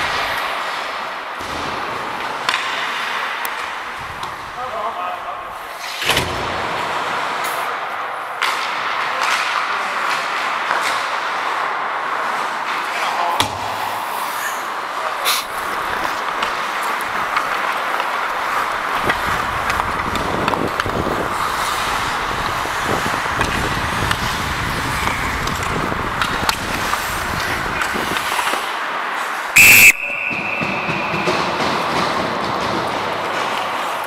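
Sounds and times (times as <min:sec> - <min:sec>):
ice hockey play on rink: 0:00.0 - 0:34.0
referee's whistle blast: 0:29.6 - 0:31.0.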